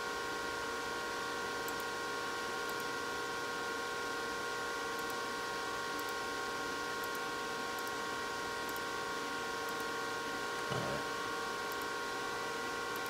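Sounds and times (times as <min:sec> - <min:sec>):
cooling fans whining: 0:04.8 - 0:13.0.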